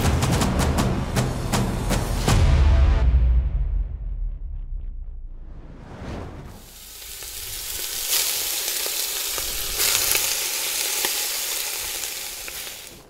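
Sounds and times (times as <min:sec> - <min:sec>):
meat sizzling in hot oil: 0:06.6 - 0:13.0.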